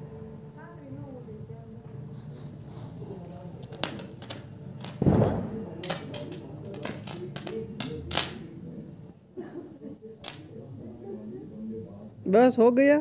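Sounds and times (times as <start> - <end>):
faint voices: 0.6 - 12.1
firecrackers banging: 3.0 - 8.7, 10.2 - 10.6.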